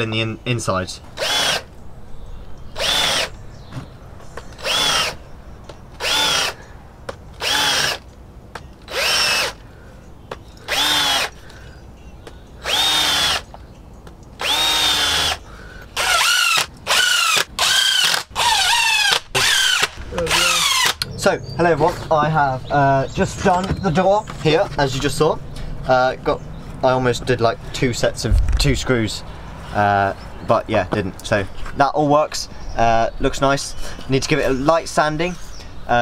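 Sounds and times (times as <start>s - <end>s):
cordless drill driving screws: 1.2s - 1.7s, 2.8s - 3.3s, 4.5s - 5.2s, 6.0s - 6.6s, 7.4s - 8.0s, 8.8s - 9.6s, 10.7s - 11.4s, 12.6s - 13.5s, 14.4s - 15.4s, 16.0s - 21.0s.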